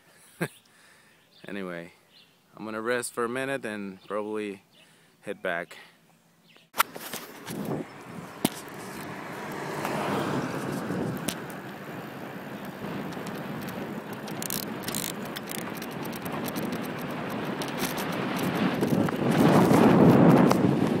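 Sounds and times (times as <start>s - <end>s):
bicycle tyres on paved road: 6.8s - 21.0s
wind on microphone: 7.1s - 21.0s.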